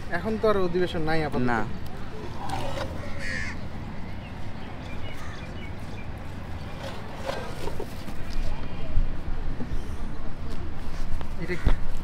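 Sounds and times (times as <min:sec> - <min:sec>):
crow cawing: 0:03.0 - 0:03.6.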